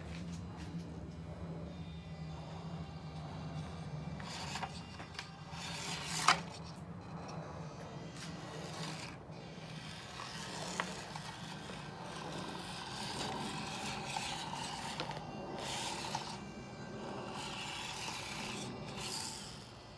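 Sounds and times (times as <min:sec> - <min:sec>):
small motor and gears running: 0:00.0 - 0:19.9
tyres scraping on stone: 0:04.2 - 0:19.9.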